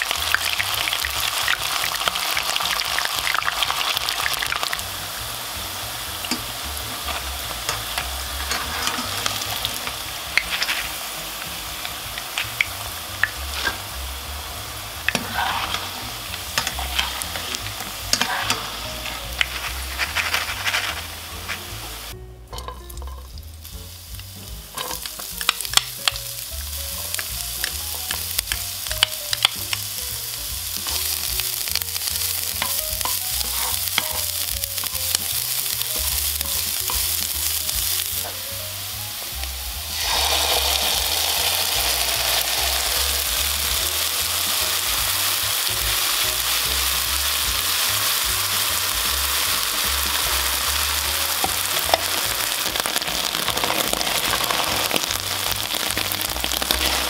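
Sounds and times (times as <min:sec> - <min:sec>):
food sizzling in hot oil: 0:00.0 - 0:57.0
utensils clicking against pan: 0:06.2 - 0:11.0, 0:15.1 - 0:21.7, 0:24.7 - 0:29.9, 0:30.7 - 0:38.5, 0:40.0 - 0:57.0.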